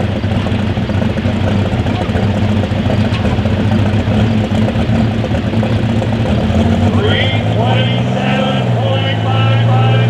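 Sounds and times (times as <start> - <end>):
tractor engine idling: 0.0 - 10.0.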